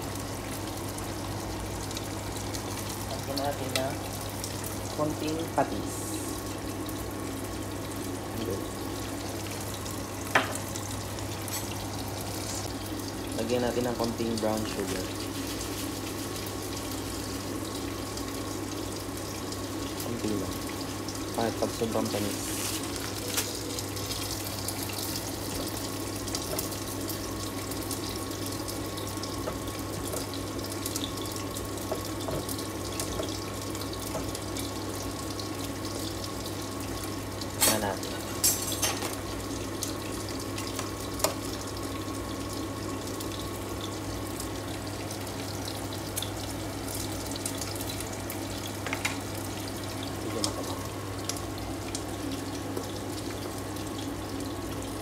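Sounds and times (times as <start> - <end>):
food simmering in frying pan: 0.0 - 55.0.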